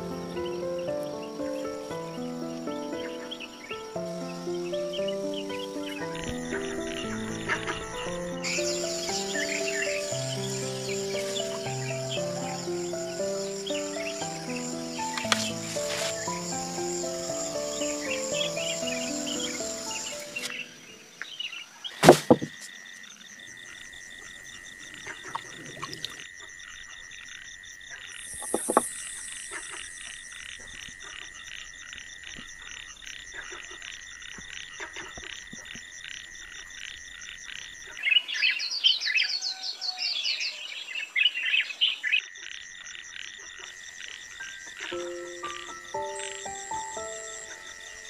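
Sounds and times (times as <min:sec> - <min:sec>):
insects pulsing trill: 0:00.0 - 0:48.0
quick chirping calls: 0:00.4 - 0:21.0, 0:44.8 - 0:48.0
sharp thump: 0:22.0 - 0:22.6.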